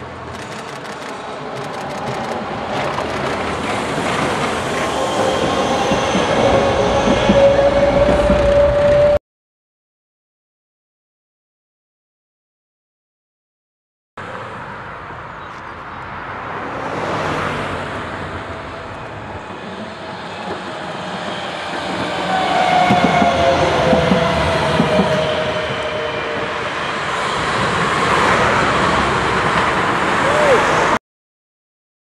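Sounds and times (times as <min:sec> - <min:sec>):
tram wheels whining on rails: 0:00.0 - 0:09.2, 0:16.4 - 0:31.0
car passing: 0:14.3 - 0:19.9.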